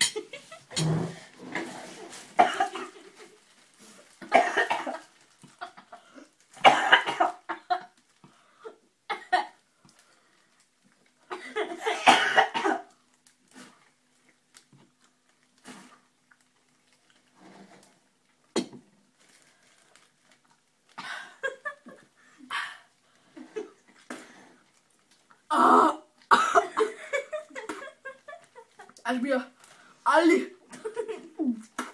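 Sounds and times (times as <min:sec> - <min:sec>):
boys coughing: 0:02.4 - 0:03.0, 0:04.2 - 0:05.1, 0:06.6 - 0:07.7, 0:11.3 - 0:12.9, 0:25.6 - 0:27.9.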